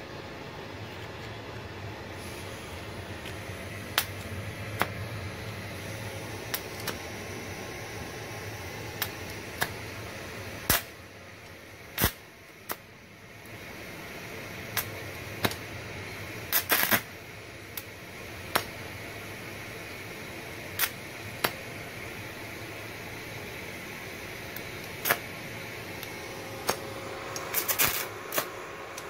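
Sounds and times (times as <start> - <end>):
welding arc hissing: 1.9 - 29.0
sharp pops and clicks: 3.2 - 5.0, 9.0 - 9.8, 10.7 - 10.9, 12.0 - 12.8, 14.7 - 15.6, 18.5 - 18.8, 20.8 - 21.6, 24.5 - 25.3, 26.0 - 29.0.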